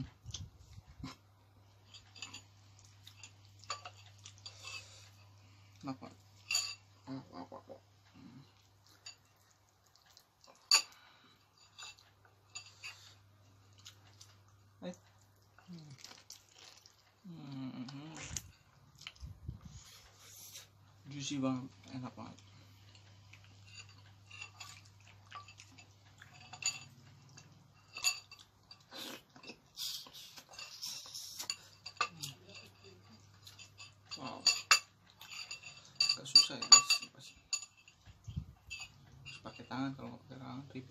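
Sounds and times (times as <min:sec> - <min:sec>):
bone and spoon clinking on bowl: 0:01.8 - 0:05.3, 0:06.0 - 0:07.1, 0:10.4 - 0:13.2, 0:22.9 - 0:29.6, 0:30.3 - 0:40.4
person chewing and biting: 0:15.9 - 0:17.2.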